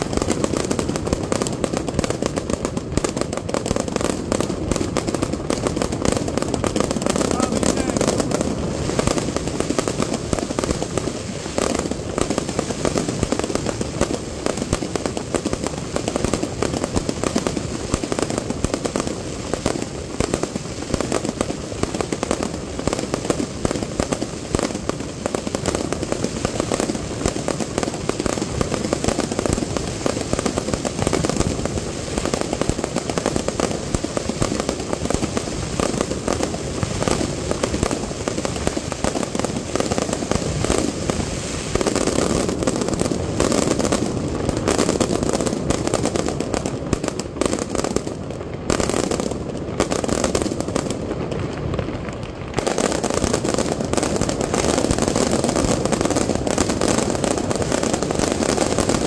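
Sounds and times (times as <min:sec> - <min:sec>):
fireworks bangs and crackle: 0:00.0 - 0:59.0.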